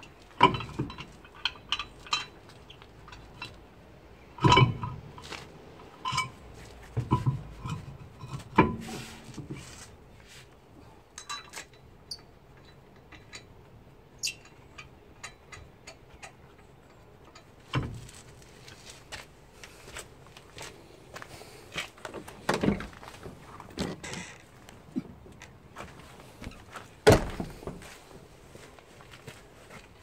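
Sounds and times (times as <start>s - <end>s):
metal tools clicking and clinking: 11.2s - 13.5s
heavy metal knocks: 27.0s - 27.9s.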